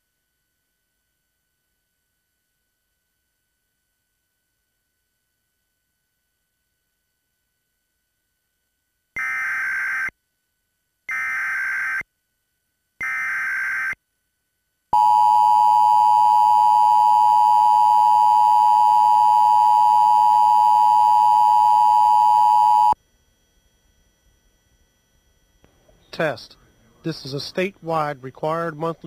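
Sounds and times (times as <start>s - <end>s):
two-tone attention signal: 15.0s - 23.0s.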